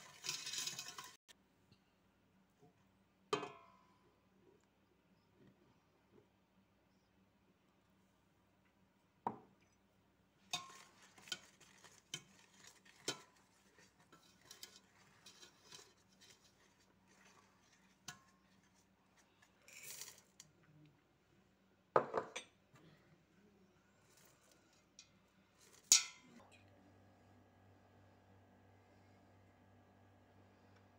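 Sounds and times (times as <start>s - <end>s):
whisk clinking against bowl: 0.0s - 1.2s, 10.5s - 20.2s
whisk scraping metal bowl: 0.0s - 1.2s, 10.5s - 20.5s.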